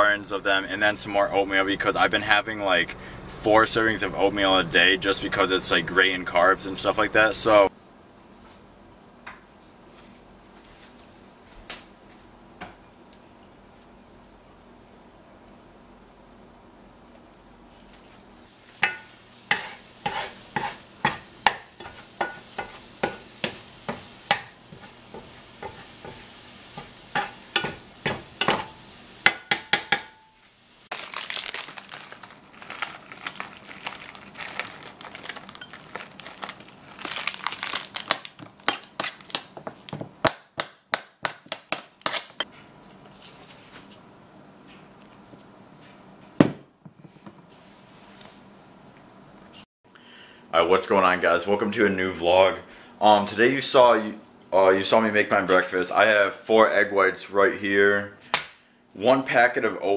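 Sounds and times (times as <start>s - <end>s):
stirring and scraping: 17.8s - 28.8s
utensil clinking on cookware: 18.8s - 26.2s, 26.8s - 30.2s.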